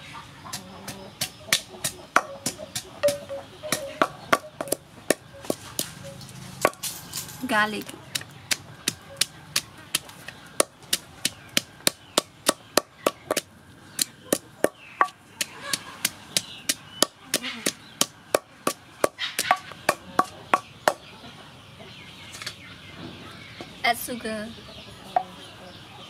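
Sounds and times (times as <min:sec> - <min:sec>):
pestle pounding in wooden mortar: 0:00.5 - 0:06.9, 0:07.8 - 0:21.0.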